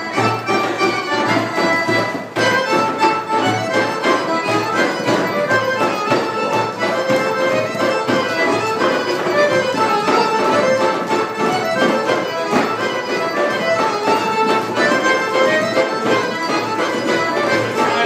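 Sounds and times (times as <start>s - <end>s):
accordion folk dance tune: 0.0s - 18.0s
steady percussive beat: 0.0s - 18.0s.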